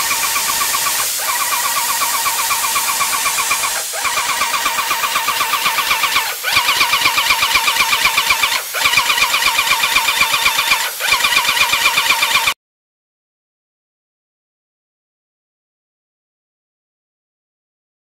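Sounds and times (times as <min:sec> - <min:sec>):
paint sprayer pump pulsing: 0:00.0 - 0:12.6.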